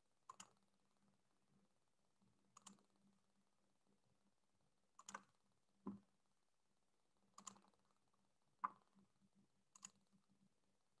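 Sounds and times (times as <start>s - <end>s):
faint mouse and key clicks: 0.2s - 0.7s, 2.5s - 3.1s, 5.0s - 6.1s, 7.3s - 8.0s, 9.7s - 10.4s.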